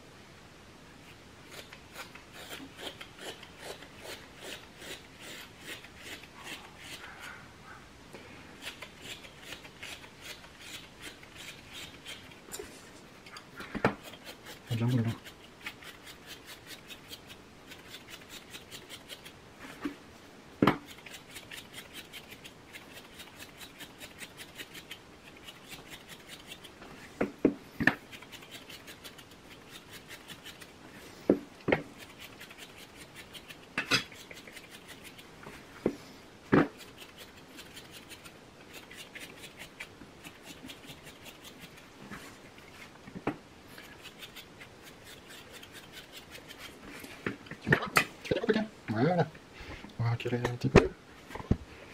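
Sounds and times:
stripping knife scratching through coat: 0:01.5 - 0:07.4, 0:08.6 - 0:12.7, 0:13.3 - 0:19.9, 0:20.8 - 0:26.8, 0:28.0 - 0:30.8, 0:31.8 - 0:35.7, 0:36.7 - 0:43.0, 0:43.7 - 0:47.2.

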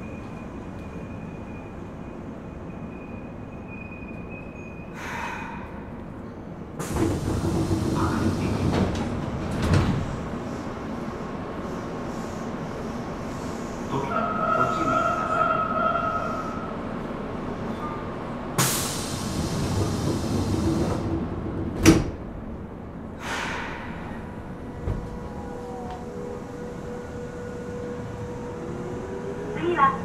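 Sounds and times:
air hissing from train doors: 0:04.9 - 0:05.9, 0:06.8 - 0:14.0, 0:18.6 - 0:21.1, 0:23.0 - 0:25.1
train doors thudding shut: 0:06.8 - 0:10.4, 0:18.6 - 0:22.5, 0:23.2 - 0:26.2.

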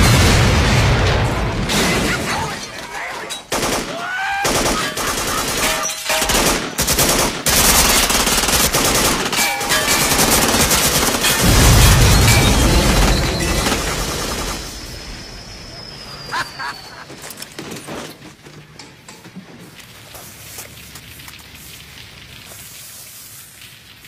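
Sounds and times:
automatic gunfire: 0:03.5 - 0:11.5.

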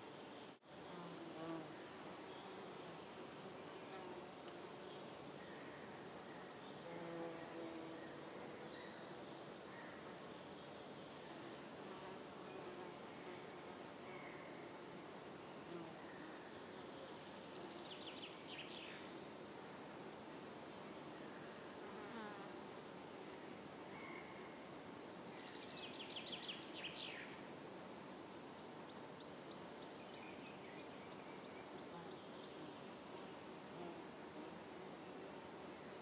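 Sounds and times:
outdoor background hiss: 0:00.0 - 0:36.0.

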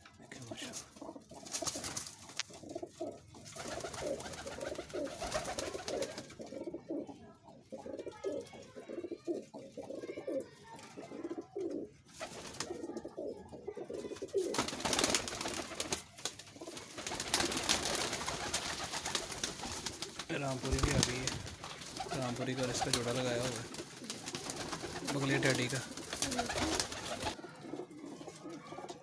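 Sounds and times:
pigeons cooing: 0:00.4 - 0:29.0
rustling: 0:14.4 - 0:27.4.

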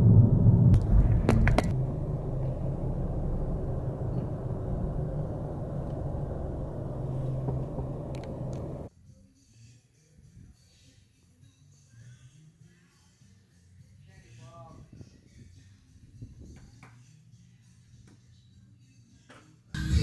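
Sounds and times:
car cabin engine drone: 0:00.0 - 0:08.9
clicks: 0:05.8 - 0:08.9.

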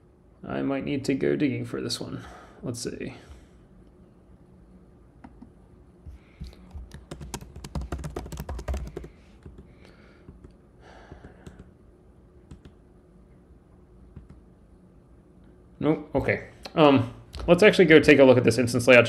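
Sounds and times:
computer keyboard typing: 0:06.4 - 0:09.7, 0:11.4 - 0:11.7, 0:12.5 - 0:12.8, 0:14.2 - 0:14.4.

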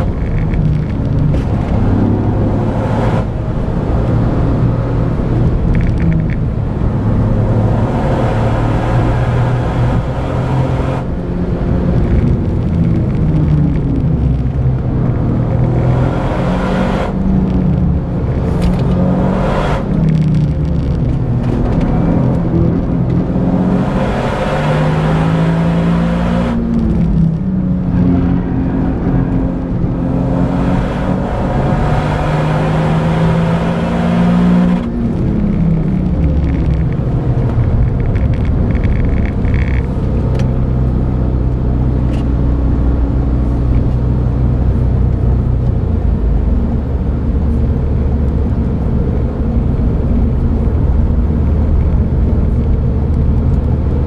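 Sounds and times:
car engine revving: 0:00.0 - 0:54.0
road noise: 0:00.0 - 0:54.0.

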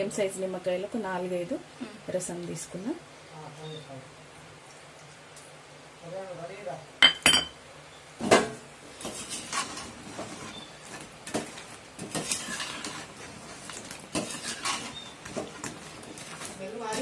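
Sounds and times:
metal spoon scraping pan: 0:09.0 - 0:17.0.

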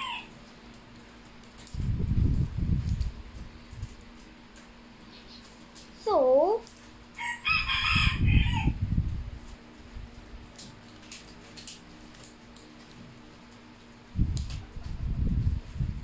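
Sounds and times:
rooster crowing: 0:00.0 - 0:00.3, 0:07.1 - 0:08.8.

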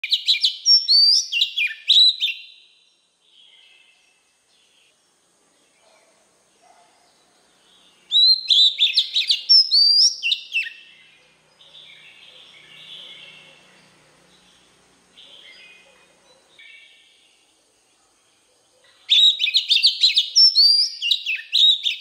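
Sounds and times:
bird singing whistled phrases: 0:00.0 - 0:02.7, 0:08.1 - 0:10.9, 0:19.1 - 0:22.0.

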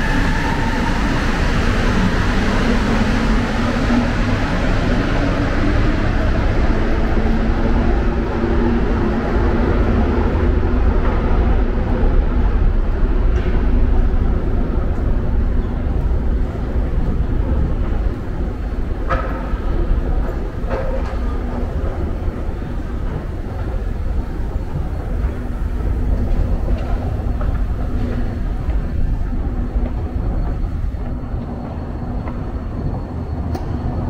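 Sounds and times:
train rumbling through station: 0:00.0 - 0:34.0.

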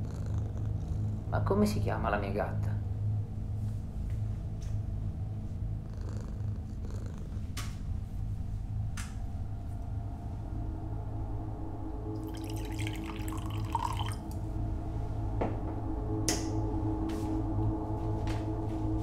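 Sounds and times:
steady low hum: 0:00.0 - 0:19.0
liquid pouring into glass: 0:12.2 - 0:14.4.

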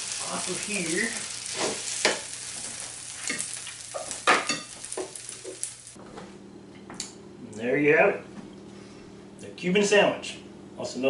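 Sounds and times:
sandwich sizzling on grill: 0:00.0 - 0:06.0
spatula scraping grill plate: 0:00.7 - 0:05.7.

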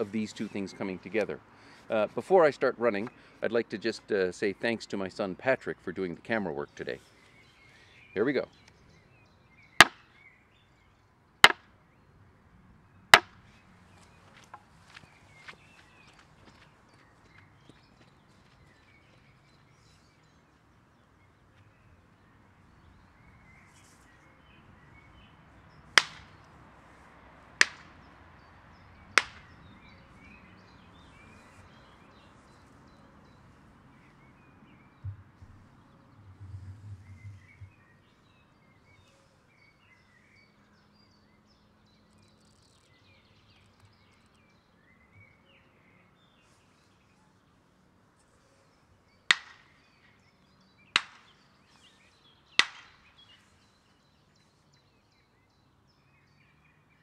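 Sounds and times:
wooden boards slapped together: 0:09.8 - 0:10.0, 0:26.0 - 0:26.3, 0:27.6 - 0:27.9, 0:29.2 - 0:29.5, 0:49.3 - 0:49.7, 0:51.0 - 0:51.3, 0:52.6 - 0:53.0
faint bird chirps: 0:29.7 - 0:47.4
low rumble: 0:36.2 - 0:37.7.

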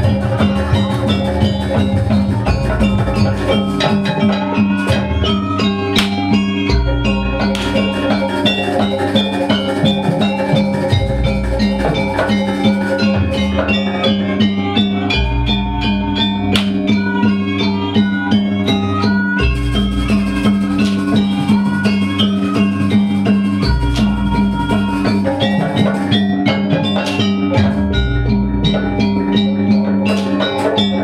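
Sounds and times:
steady drum pattern: 0:00.0 - 0:14.2
ringing pitched metal notes: 0:00.0 - 0:31.0.

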